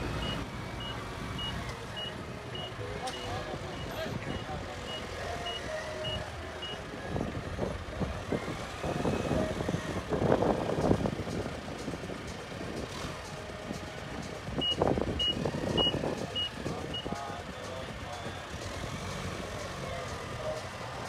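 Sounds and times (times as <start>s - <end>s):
forklift engine running: 0.0s - 21.0s
reversing alarm beeping: 0.2s - 6.8s, 14.6s - 17.2s.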